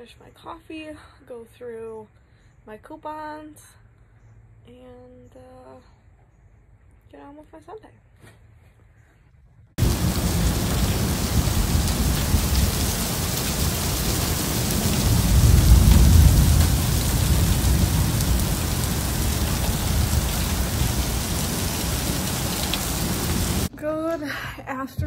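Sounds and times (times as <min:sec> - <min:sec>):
deep low rumble: 0:09.8 - 0:22.8
heavy rain pouring: 0:09.8 - 0:23.7.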